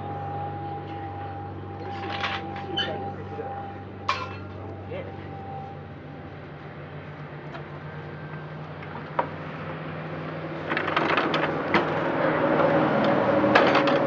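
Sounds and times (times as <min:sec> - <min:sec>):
low steady hum: 0:00.0 - 0:14.0
metal deck clanking and scraping: 0:04.1 - 0:04.6, 0:10.6 - 0:14.0.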